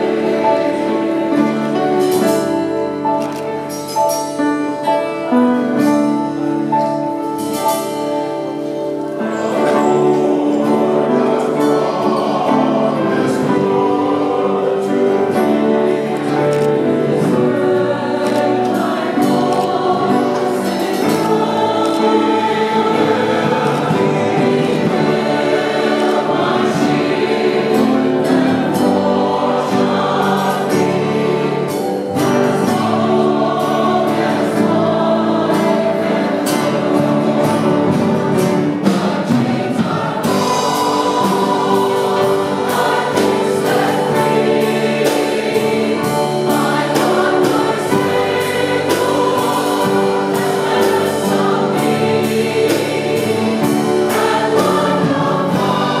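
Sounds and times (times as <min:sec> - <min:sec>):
acoustic guitar: 0:00.0 - 0:56.0
choir singing worship song: 0:00.0 - 0:56.0
keyboard: 0:00.0 - 0:56.0
lead singer: 0:00.0 - 0:56.0
drums steady beat: 0:37.0 - 0:56.0.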